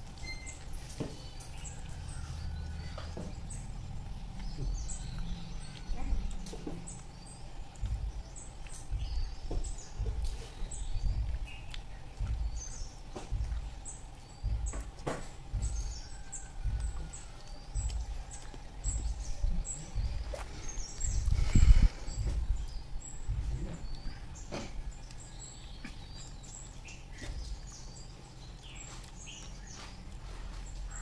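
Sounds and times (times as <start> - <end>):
wind rumbling on microphone: 0.0 - 29.4.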